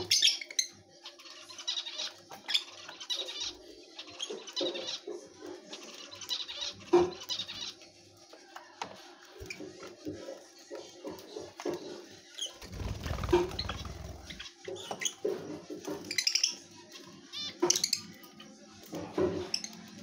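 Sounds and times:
lovebirds chirping: 12.3s - 15.2s
wing flutters: 12.5s - 14.5s.

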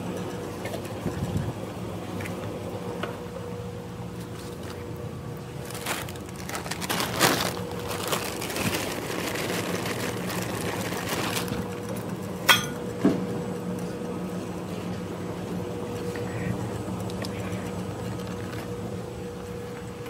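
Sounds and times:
ice cream machine running: 0.0s - 20.0s
plastic bag rustling: 5.4s - 12.0s.

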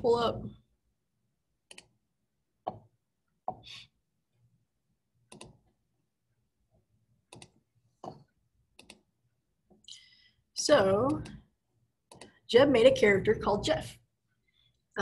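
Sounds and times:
computer mouse clicking: 1.6s - 2.0s, 5.3s - 5.8s, 7.3s - 9.1s, 11.1s - 12.4s.

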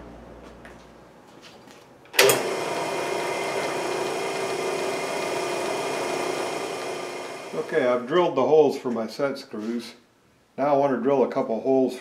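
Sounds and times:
drill press motor humming: 2.2s - 8.0s.

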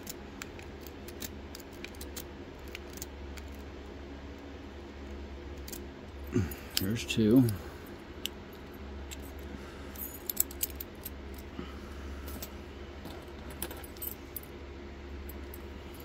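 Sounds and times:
metallic clicks of lock picks: 0.0s - 3.6s, 10.2s - 11.4s
low steady hum: 0.0s - 16.0s.

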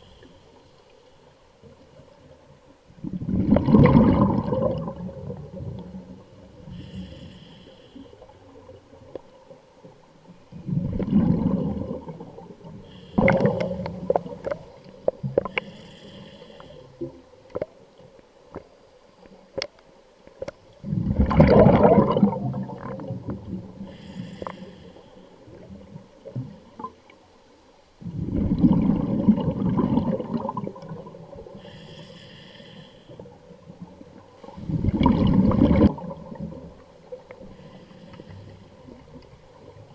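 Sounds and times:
bubbling exhaust underwater: 3.0s - 9.2s, 10.5s - 17.7s, 20.8s - 27.0s, 28.0s - 39.9s
diver inhaling through regulator: 6.6s - 8.4s, 12.8s - 14.2s, 15.4s - 17.1s, 23.8s - 25.6s, 31.4s - 33.3s, 37.4s - 38.8s.

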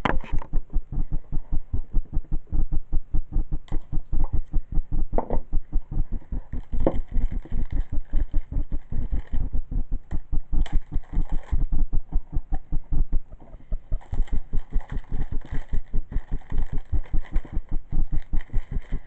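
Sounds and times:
rapid low throbbing: 0.2s - 19.0s
plastic case knocking and rustling: 5.1s - 5.6s.

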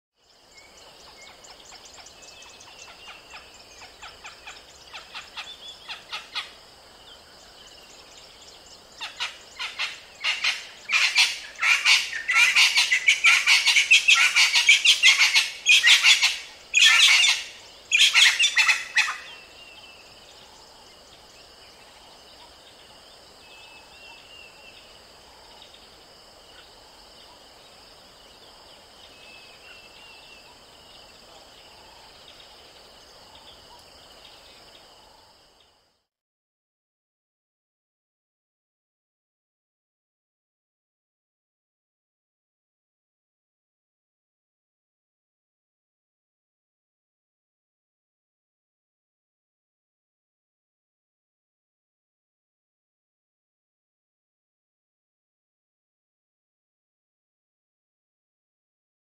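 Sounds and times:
background hiss: 0.2s - 36.1s.

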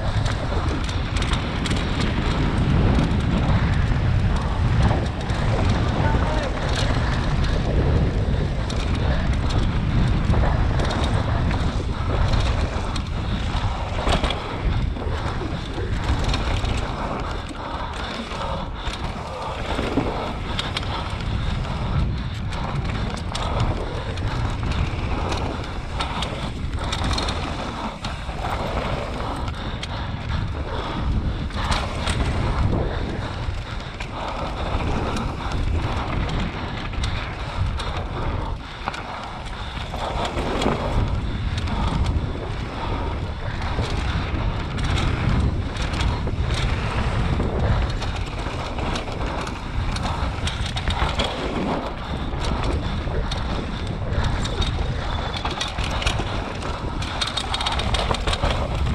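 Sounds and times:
wind noise on microphone: 0.0s - 58.9s.

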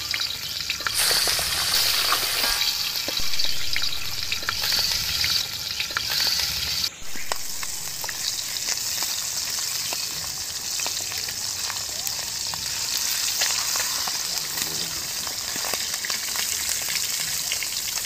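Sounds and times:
fish frying in hot oil: 0.0s - 18.0s
oil popping: 0.7s - 9.1s
wooden spatula scraping: 0.9s - 5.3s.

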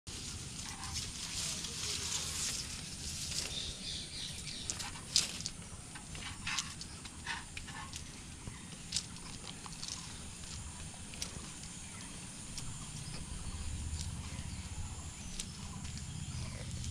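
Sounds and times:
rustling: 0.1s - 11.8s
steady low rumble: 0.1s - 16.9s.

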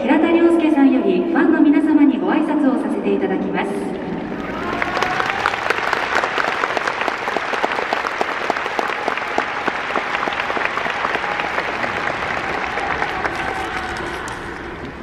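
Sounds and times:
crowd applauding: 4.3s - 15.0s.

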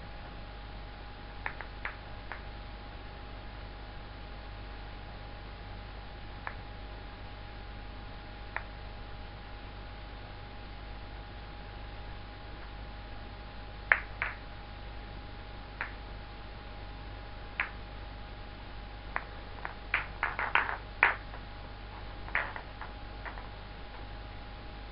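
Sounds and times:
acrylic balls clicking together: 17.6s - 17.8s, 19.2s - 24.1s.

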